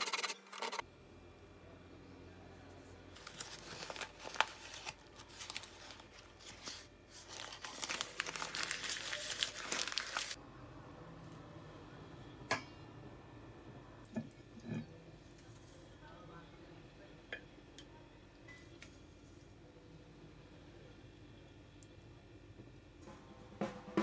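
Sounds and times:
paper crinkling: 0:03.1 - 0:10.4.

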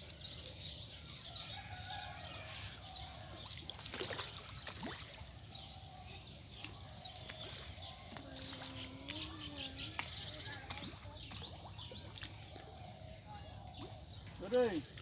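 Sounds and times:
small birds chirping: 0:00.0 - 0:15.0
light rustles and clicks: 0:05.8 - 0:11.4.

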